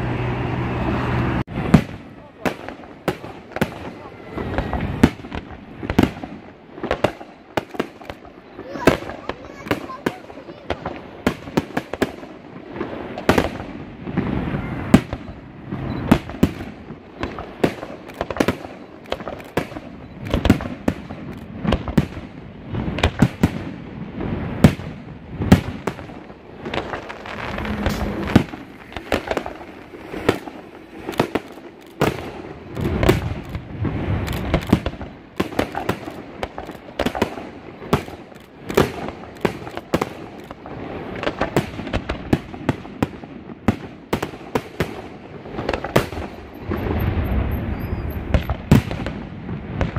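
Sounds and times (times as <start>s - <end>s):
fireworks shells bursting: 14.2s - 23.6s, 24.4s - 41.6s.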